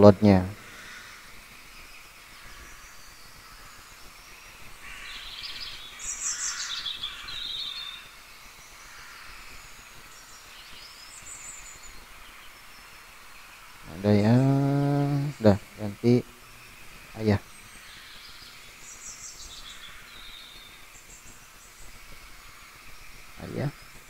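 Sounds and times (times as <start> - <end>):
bird chirping: 0.0 - 24.0
faint room hiss: 0.0 - 24.0.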